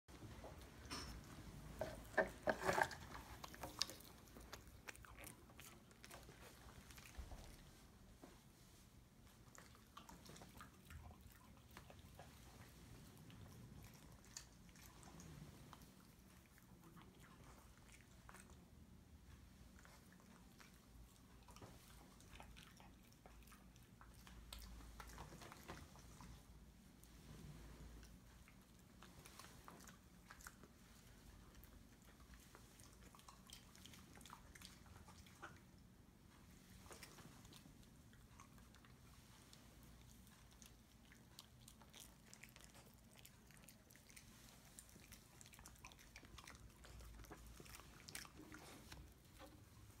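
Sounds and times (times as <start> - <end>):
dog chewing with jaw clicks: 19.7 - 26.4, 28.1 - 50.0.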